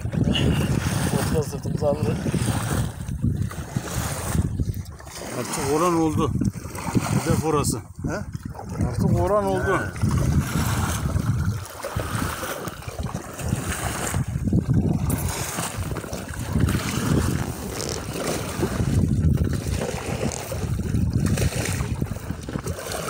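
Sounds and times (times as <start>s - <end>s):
water washing against boat hull: 0.0s - 23.0s
wind buffeting microphone: 0.0s - 23.0s.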